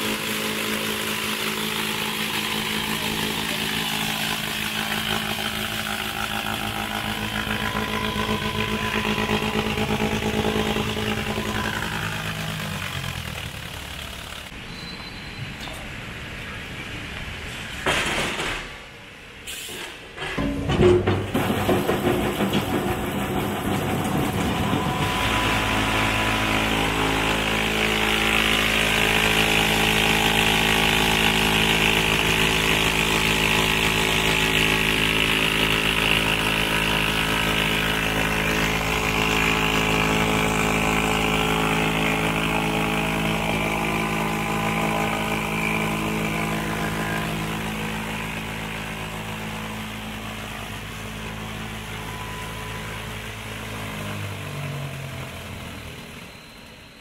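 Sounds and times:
electric motor hum: 0:00.0 - 0:14.5, 0:23.8 - 0:53.8.

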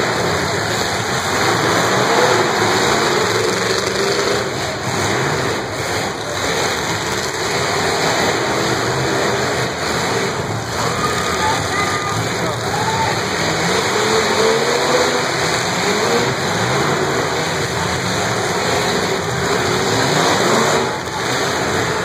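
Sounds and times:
car engines revving: 0:00.0 - 0:22.0.

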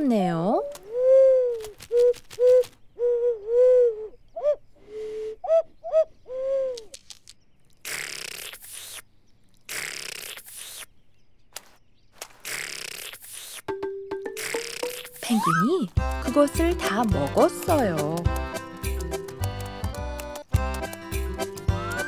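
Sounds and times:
cartoon penguin hooting and cooing: 0:00.6 - 0:06.8, 0:15.1 - 0:15.9
crunchy munching: 0:06.7 - 0:10.9, 0:11.5 - 0:13.7.

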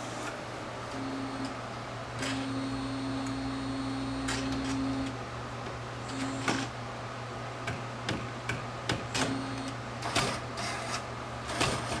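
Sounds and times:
steady low hum: 0:00.0 - 0:12.0
short low motor tones: 0:02.2 - 0:05.2, 0:05.8 - 0:06.8.

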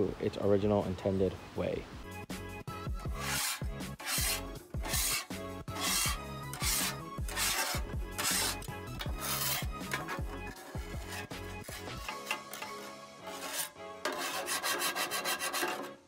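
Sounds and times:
background music with beat: 0:02.0 - 0:13.7
metal scraper scraping griddle: 0:03.0 - 0:16.0.

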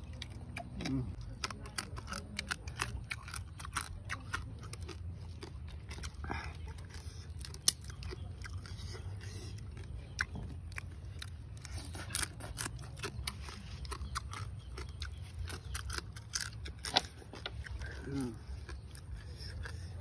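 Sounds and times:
chewing and crunching: 0:00.0 - 0:20.0
steady low hum: 0:00.0 - 0:20.0
crab shells cracking: 0:00.1 - 0:05.5, 0:07.4 - 0:08.4, 0:10.6 - 0:17.8.

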